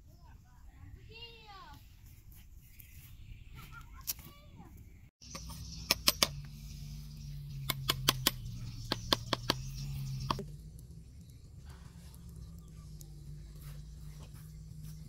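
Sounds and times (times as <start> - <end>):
wood fire crackling and popping: 7.6 - 15.0.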